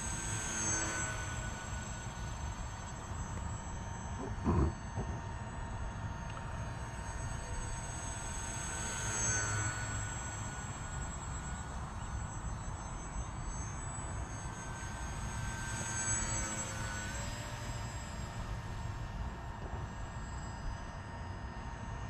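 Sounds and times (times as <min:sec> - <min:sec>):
model plane motor whining: 0:00.0 - 0:05.2.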